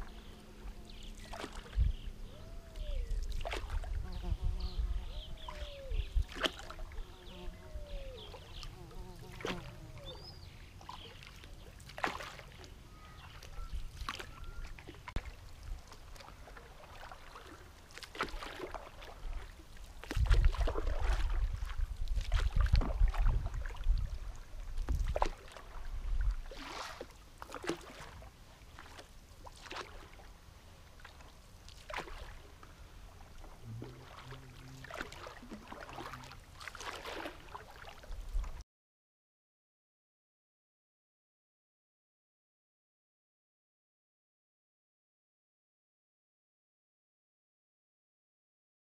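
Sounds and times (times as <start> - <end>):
paddles splashing through water: 0.0 - 4.0, 5.1 - 7.3, 7.9 - 38.6.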